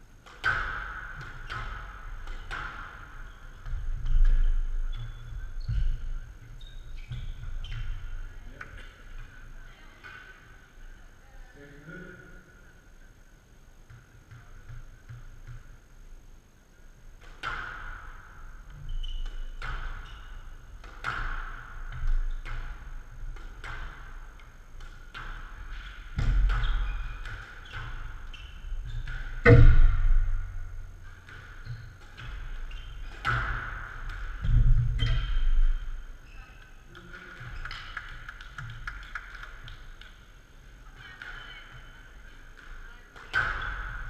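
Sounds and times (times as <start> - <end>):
squash ball hitting walls: 0.2 - 4.9, 20.8 - 36.0.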